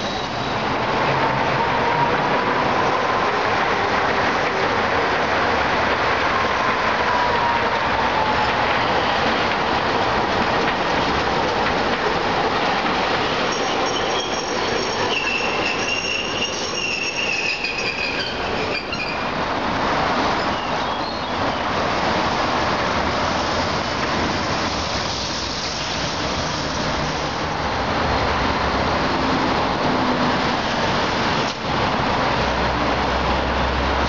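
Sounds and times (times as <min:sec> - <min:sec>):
road traffic noise: 0:00.0 - 0:34.0
streetcars running on track: 0:00.0 - 0:34.0
steel wheels squealing: 0:13.3 - 0:19.4, 0:20.3 - 0:21.4.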